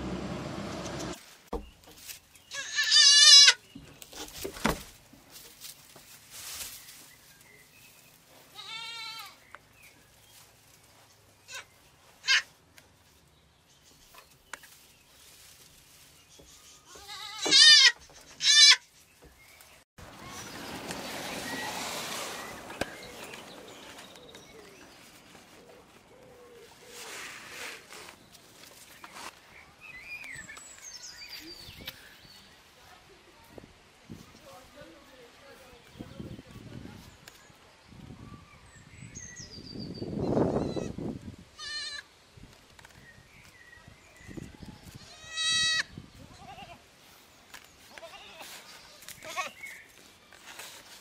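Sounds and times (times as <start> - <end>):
goat bleating: 2.5 - 3.6, 8.5 - 9.4, 16.9 - 18.8, 41.6 - 42.1, 45.0 - 46.8, 47.9 - 48.5, 49.2 - 49.6
soft rustling: 3.8 - 17.2, 18.0 - 37.5, 46.8 - 51.0.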